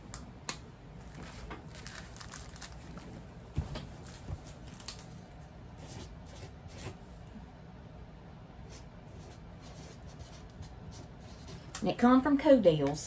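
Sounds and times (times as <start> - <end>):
paper rustling: 1.0 - 3.2.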